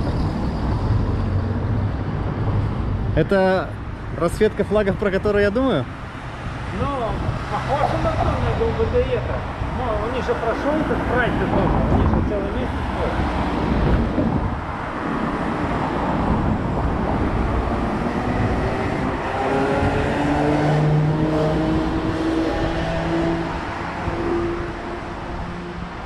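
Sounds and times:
road traffic passing: 0.0 - 26.0
vehicle engine accelerating: 15.7 - 24.8.

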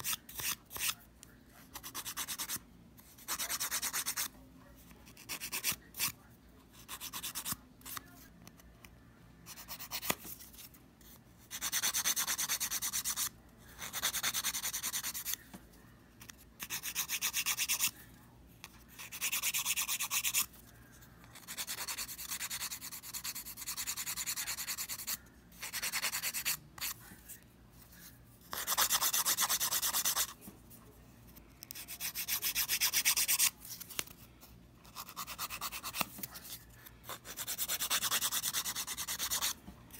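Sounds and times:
nail file rasping on fingernails: 16.6 - 17.9, 19.0 - 20.5, 28.5 - 30.4, 31.6 - 33.5, 34.8 - 36.1, 37.1 - 39.6.

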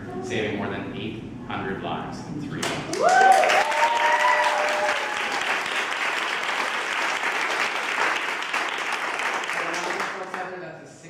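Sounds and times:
person cheering: 2.9 - 5.5
people applauding: 2.9 - 10.5.

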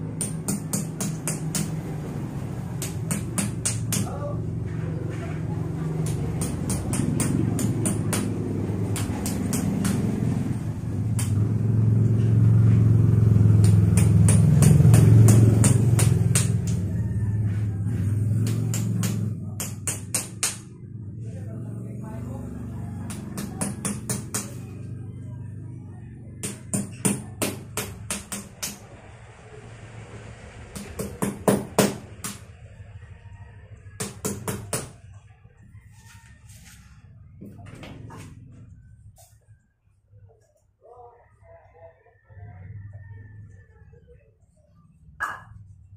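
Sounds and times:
hammer tapping metal tool: 0.2 - 1.8, 2.8 - 4.2, 6.0 - 10.1, 18.4 - 20.7, 23.1 - 24.6.

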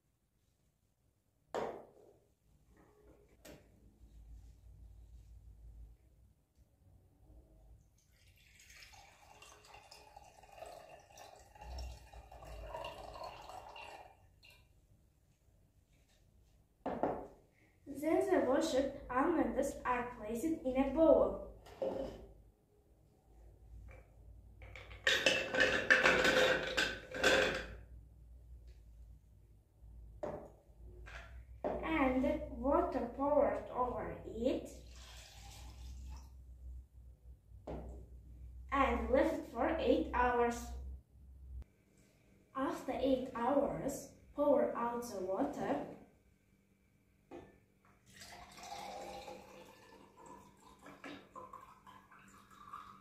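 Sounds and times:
water trickling and dripping: 7.8 - 14.8, 34.7 - 36.5, 48.0 - 53.0
nuts clattering into glass jug: 24.8 - 27.7.

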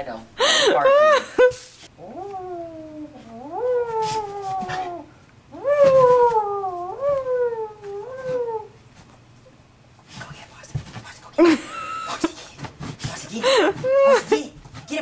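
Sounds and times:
animal yowling: 2.0 - 8.8.

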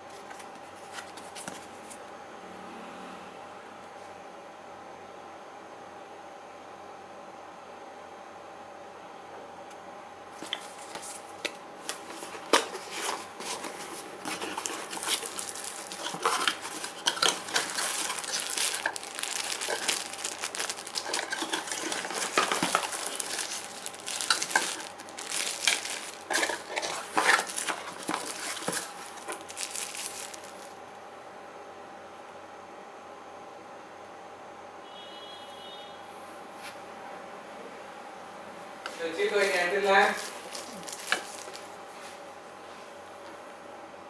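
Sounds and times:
faint steady hum: 0.0 - 44.0
plastic wrapping crinkling: 10.4 - 30.8, 39.2 - 41.8
cardboard box handled: 11.9 - 30.7.

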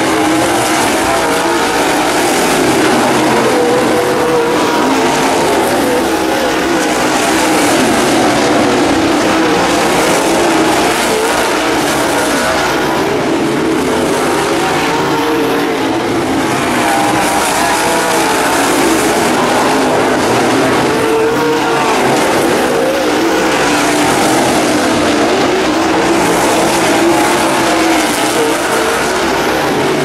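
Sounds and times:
race car engines droning: 0.0 - 30.0.

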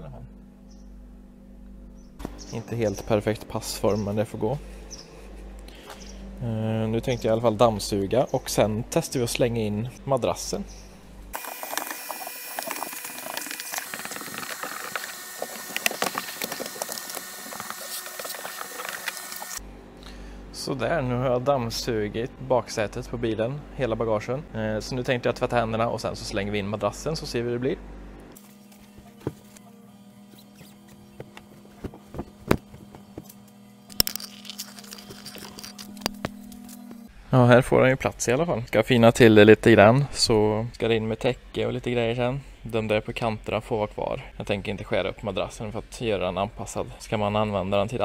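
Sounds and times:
steady low hum: 0.0 - 48.0
vacuum cleaner running: 11.3 - 20.4, 28.4 - 37.1.

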